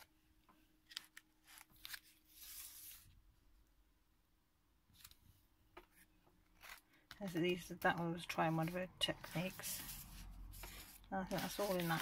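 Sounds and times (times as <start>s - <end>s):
page turning rustle: 0.8s - 3.1s, 8.2s - 12.0s
paper crackles: 6.6s - 12.0s.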